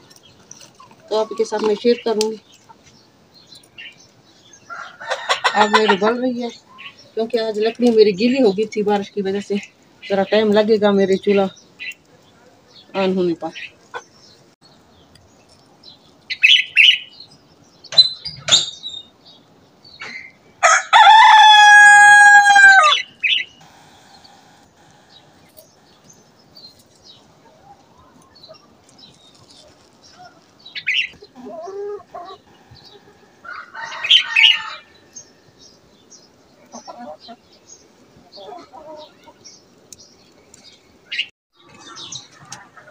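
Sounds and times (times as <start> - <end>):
rooster crowing: 4.7 - 6.0, 20.6 - 23.1, 33.1 - 35.3
chicken clucking: 31.0 - 34.7, 36.6 - 37.4, 38.2 - 39.4, 41.6 - 42.9.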